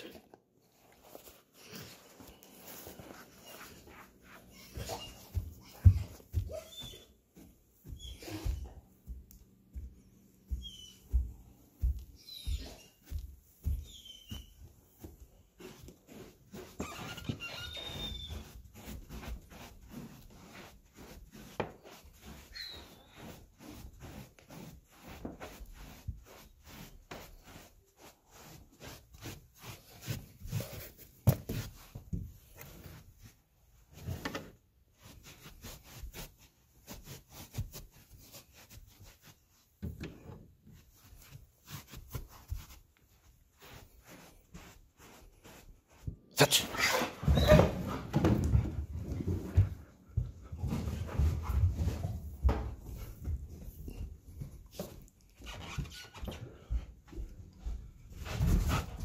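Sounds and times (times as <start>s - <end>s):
cloth rustling: 0.0s - 14.4s
rustling: 0.0s - 46.1s
footsteps in socks on carpet: 0.0s - 59.0s.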